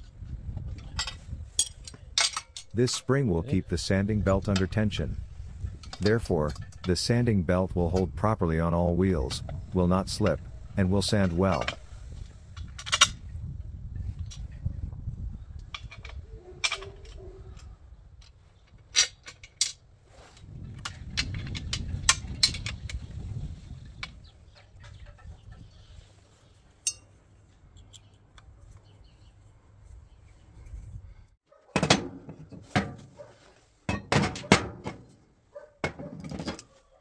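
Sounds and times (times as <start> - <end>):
metallic clicks of steel parts: 0.8 - 3.2, 5.6 - 7.2, 11.0 - 11.9, 12.6 - 13.2, 15.6 - 19.8, 26.8 - 28.5
steel brackets clanking on workbench: 1.0 - 3.1.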